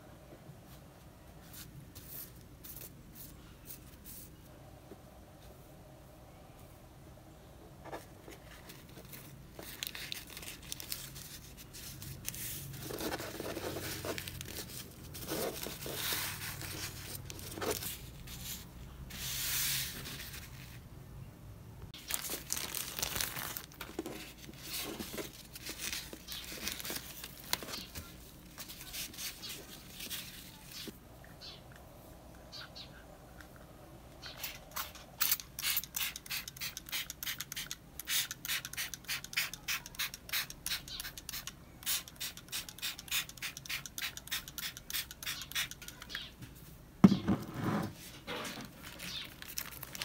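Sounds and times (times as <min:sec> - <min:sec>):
plastic sheet crinkling: 0:08.6 - 0:18.0, 0:22.0 - 0:30.9, 0:48.4 - 0:50.0.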